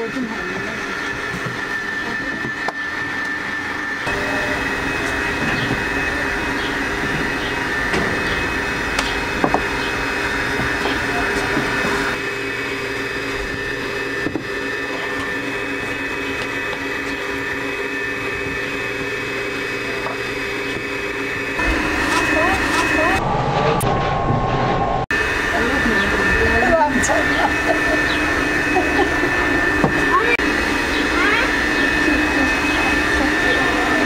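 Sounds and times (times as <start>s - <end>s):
stand mixer whirring: 0.0s - 23.2s, 25.1s - 34.0s.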